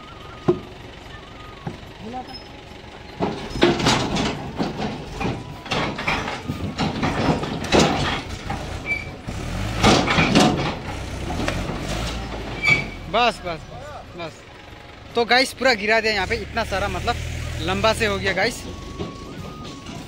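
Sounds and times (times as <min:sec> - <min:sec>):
tractor engine running: 0:00.0 - 0:20.0
logs tumbling with heavy thuds: 0:03.1 - 0:13.2.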